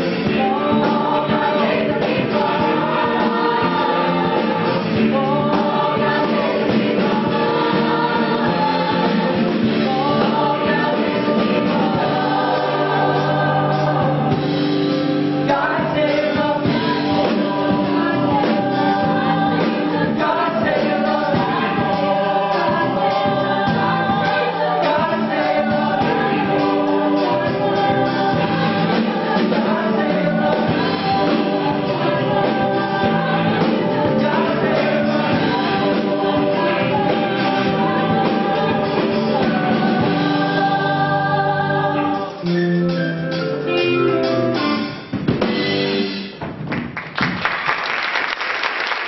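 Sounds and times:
cast singing in chorus: 0.0 - 42.6
live pit band: 0.0 - 49.0
audience applause: 46.7 - 49.0.

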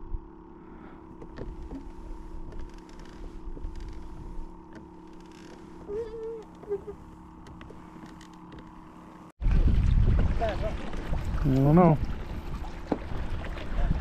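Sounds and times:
electric motor hum: 0.0 - 9.4
water rumble: 0.0 - 14.0.

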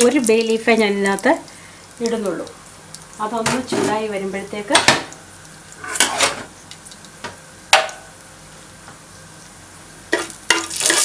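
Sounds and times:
spices sizzling in oil: 0.0 - 11.0.

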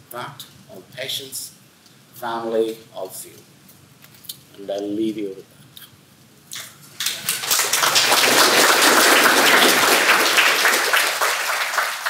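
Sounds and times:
audience applauding: 7.0 - 12.0.

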